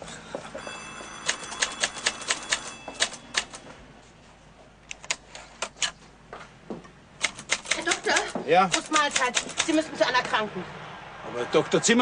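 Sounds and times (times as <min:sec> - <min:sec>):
typewriter keys clacking: 0:01.2 - 0:03.6, 0:07.2 - 0:09.8.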